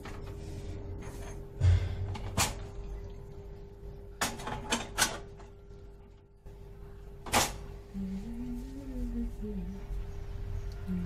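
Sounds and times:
faint steady hum: 0.0 - 11.0
stove parts clicking and knocking: 4.2 - 5.4.

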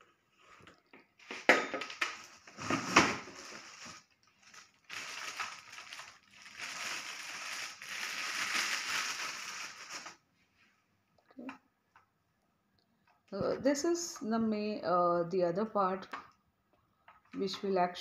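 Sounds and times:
plastic packaging crinkling: 1.8 - 10.2.

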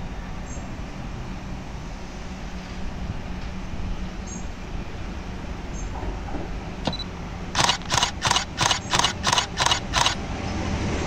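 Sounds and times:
passing train rumble: 0.0 - 11.0
sharp click: 6.8 - 10.2
camera shutter burst: 6.9 - 10.2.

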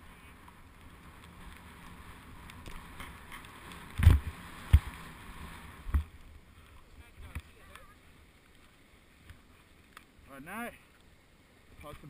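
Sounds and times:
snowboard sliding over snow: 0.0 - 6.2.

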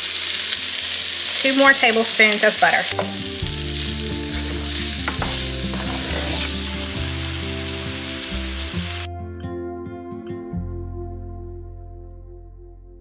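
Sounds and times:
vegetables sizzling in skillet: 0.0 - 9.1
soft background music: 0.2 - 13.0
wooden spoon scraping skillet: 4.1 - 7.0.

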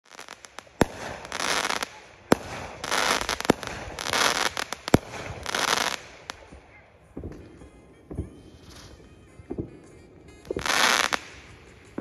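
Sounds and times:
firework crackling sizzle: 0.1 - 6.6, 10.5 - 12.0
firework bangs: 0.1 - 9.8, 10.4 - 12.0.

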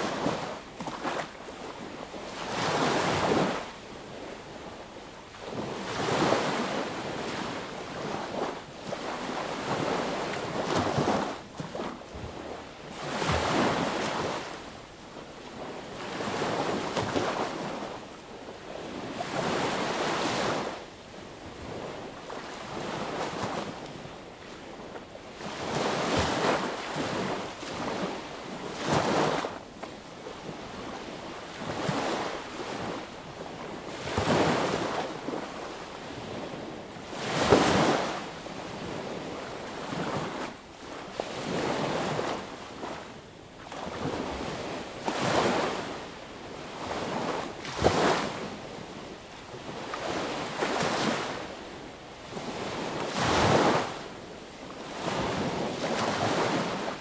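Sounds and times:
small waves washing on beach: 0.0 - 57.0.

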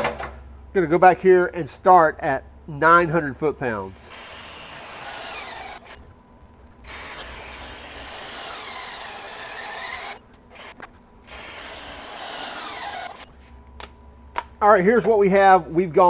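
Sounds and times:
torque wrench motor whirring: 4.1 - 6.0, 6.8 - 13.3.

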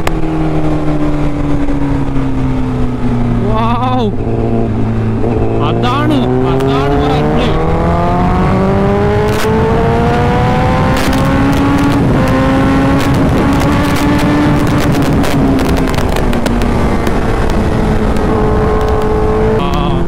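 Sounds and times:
motorcycle engine revving: 0.0 - 20.0
wind rush on microphone: 0.0 - 20.0.

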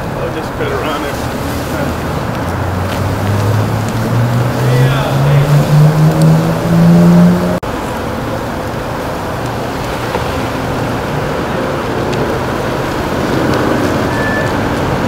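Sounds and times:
fire engines idling: 0.0 - 15.0
road traffic: 0.0 - 15.0
rising pitched tone: 2.6 - 7.6.

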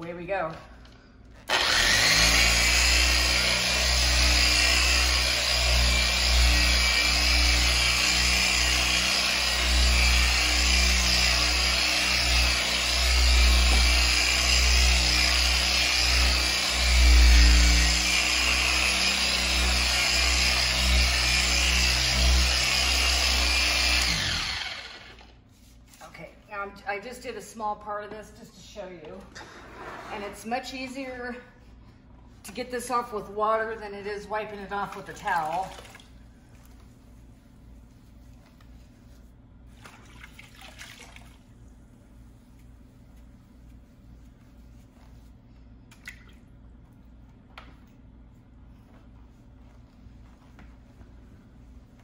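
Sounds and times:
power buffer running: 1.4 - 25.3.

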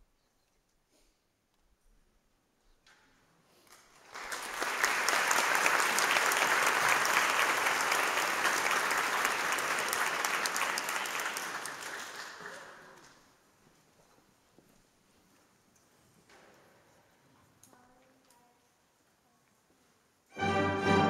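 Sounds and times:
audience applauding: 3.6 - 13.2.

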